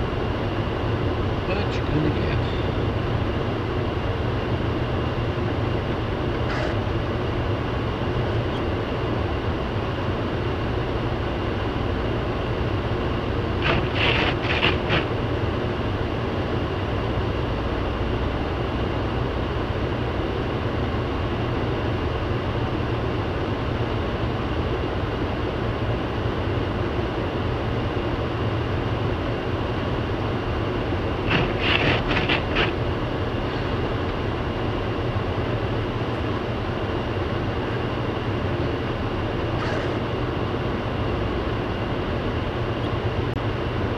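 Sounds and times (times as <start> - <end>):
car cabin road noise: 13.5 - 15.5, 30.7 - 36.4.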